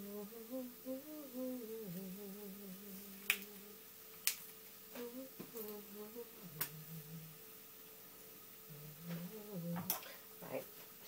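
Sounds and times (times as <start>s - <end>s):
woman humming: 0.0s - 3.8s, 4.9s - 7.4s, 8.7s - 10.7s.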